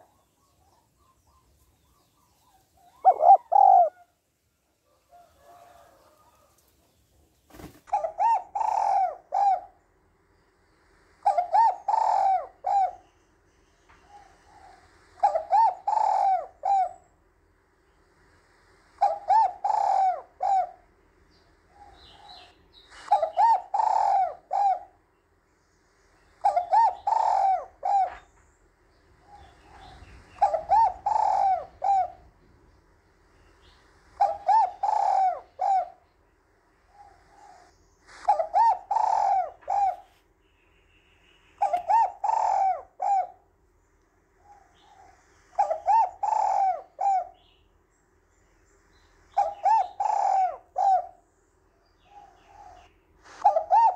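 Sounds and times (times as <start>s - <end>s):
dove cooing: 0.0s - 4.2s, 7.6s - 9.8s, 11.2s - 13.1s, 14.0s - 17.1s, 19.0s - 20.9s, 21.7s - 25.0s, 26.4s - 28.4s, 29.2s - 32.6s, 33.4s - 36.1s, 36.9s - 40.2s, 41.6s - 43.5s, 44.4s - 47.6s, 49.3s - 51.2s, 52.0s - 53.9s.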